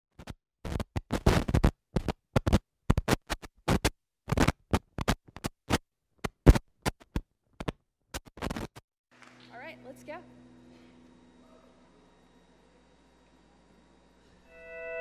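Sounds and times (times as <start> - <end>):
film crackles and pops: 0.2 - 8.8.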